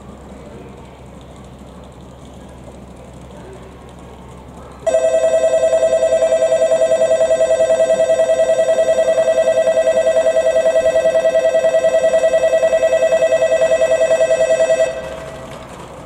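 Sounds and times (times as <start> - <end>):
electronic platform warning bell: 4.9 - 15.4.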